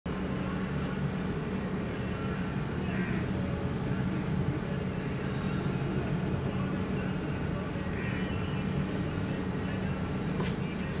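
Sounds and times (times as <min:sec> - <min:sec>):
steady low hum: 0:00.1 - 0:11.0
crows cawing: 0:02.9 - 0:03.3, 0:07.9 - 0:08.3.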